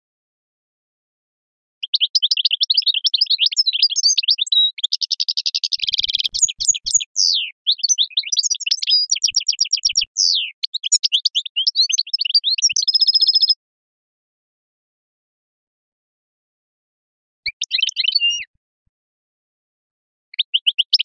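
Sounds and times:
goldfinch singing: 1.8s - 13.6s, 17.5s - 18.5s, 20.4s - 21.0s.

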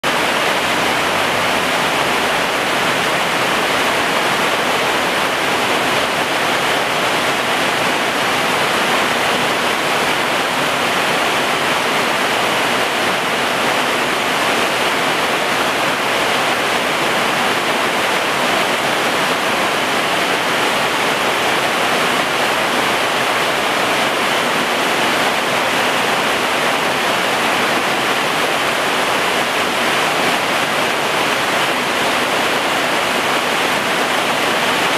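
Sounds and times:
heavy rain pouring: 0.0s - 34.9s.

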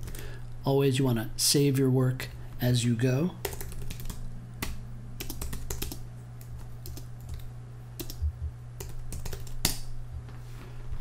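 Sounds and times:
computer keyboard keystrokes: 3.4s - 9.9s.

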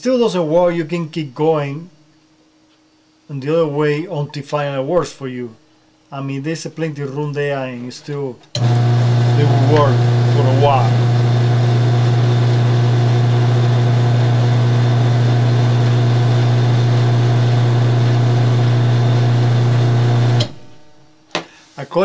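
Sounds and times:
motor cutoff click: 8.5s - 20.8s
garage door opener motor humming: 8.5s - 20.9s.

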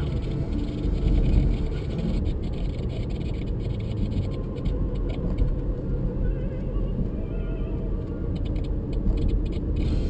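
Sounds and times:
car road and engine rumble: 0.0s - 10.0s
faint music on car radio: 0.0s - 10.0s.

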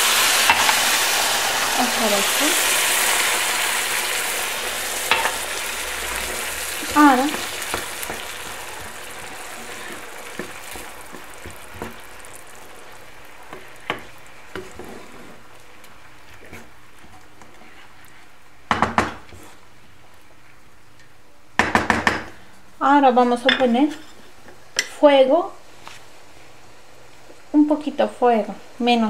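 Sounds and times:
water bubbling and sizzling in pan: 0.0s - 21.0s
wooden spoon knocking against pan: 18.7s - 19.2s, 21.6s - 22.3s.

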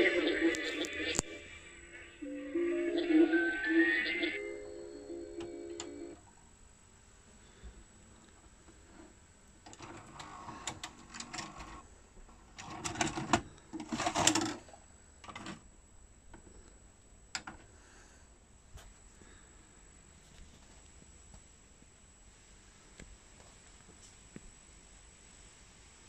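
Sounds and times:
tape mechanism whirring and clattering: 12.5s - 14.6s.

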